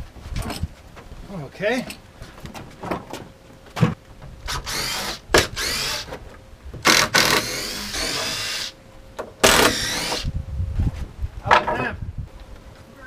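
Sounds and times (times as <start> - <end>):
power drill whining: 4.5 - 6.1, 6.8 - 8.8, 9.4 - 10.3.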